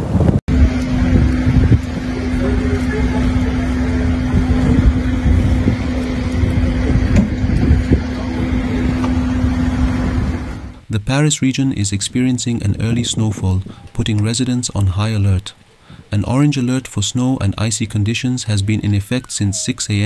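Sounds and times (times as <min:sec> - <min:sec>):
vehicle engine humming: 0:00.0 - 0:11.0
rumbling street traffic: 0:00.0 - 0:20.0.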